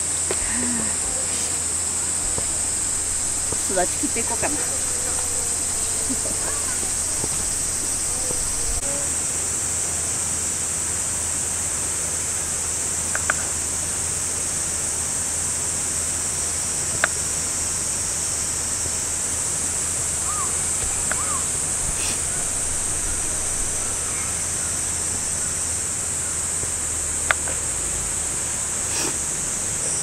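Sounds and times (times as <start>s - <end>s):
high-pitched insect drone: 0.0s - 9.8s, 16.0s - 30.0s.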